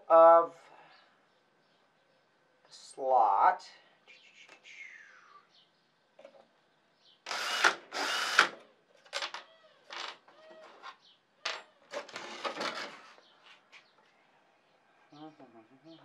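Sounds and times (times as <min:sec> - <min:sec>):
cordless drill boring: 0:07.3 - 0:08.6.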